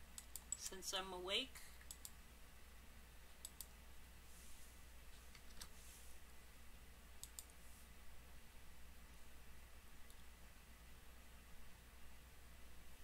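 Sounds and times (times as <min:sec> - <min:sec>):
low steady hum: 0:00.0 - 0:13.0
mouse and keyboard clicks: 0:07.2 - 0:07.6.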